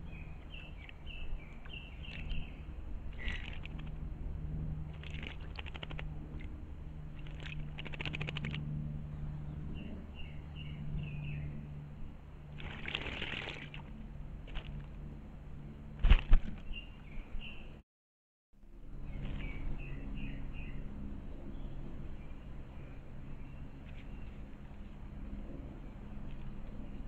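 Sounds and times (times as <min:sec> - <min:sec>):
bird splashing in water: 0:03.1 - 0:04.0, 0:04.9 - 0:06.5, 0:07.2 - 0:08.6, 0:12.6 - 0:13.9.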